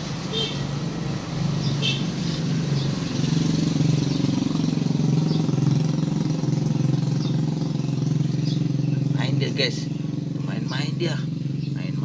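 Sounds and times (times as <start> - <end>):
small engine idling: 2.7 - 12.0.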